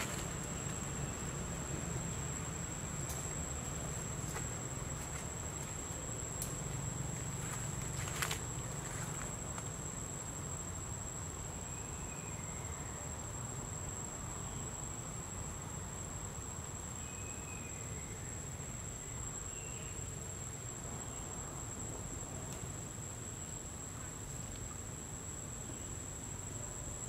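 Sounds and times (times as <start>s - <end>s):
cricket trilling: 0.0s - 27.0s
low outdoor background hum: 0.0s - 27.0s.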